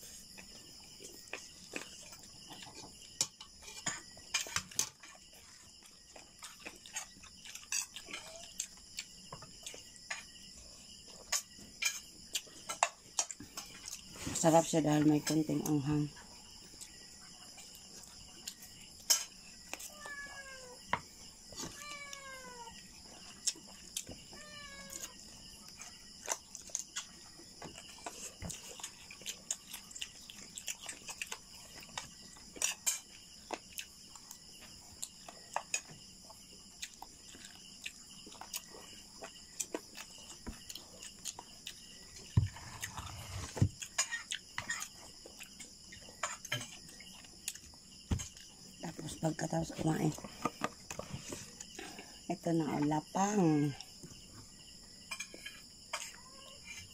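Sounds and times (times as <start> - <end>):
insects chirring: 0.0 - 56.9
cat meowing: 19.9 - 20.8, 21.7 - 22.8, 24.3 - 25.1
eating sounds: 24.8 - 49.1.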